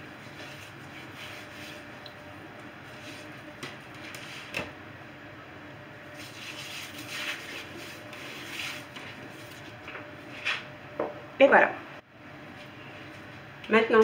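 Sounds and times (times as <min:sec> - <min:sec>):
hands rubbing meat: 0:00.1 - 0:02.1.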